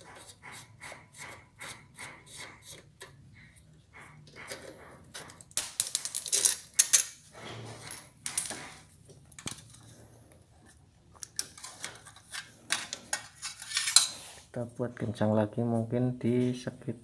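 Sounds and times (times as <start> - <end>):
metal clatter with bright ring: 5.6 - 7.2.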